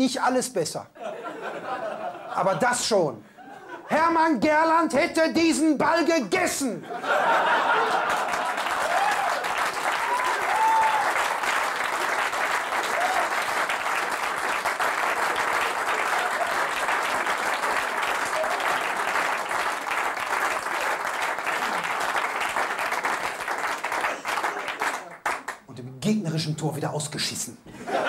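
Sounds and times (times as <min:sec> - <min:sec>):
audience applauding: 0:07.1 - 0:25.7
calls from crowd: 0:08.7 - 0:11.5, 0:12.6 - 0:13.6, 0:15.4 - 0:19.6.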